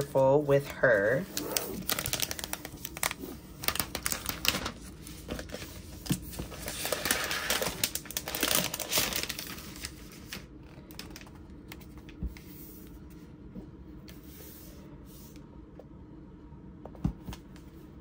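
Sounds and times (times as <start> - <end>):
plastic sleeve crinkling: 1.1 - 11.3.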